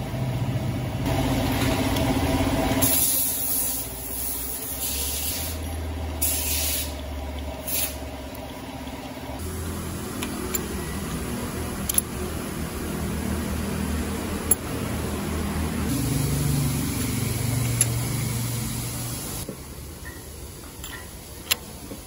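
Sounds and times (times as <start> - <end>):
low mechanical hum: 0.0 - 22.0
sharp metallic clicks: 10.2 - 12.4, 14.4 - 14.8.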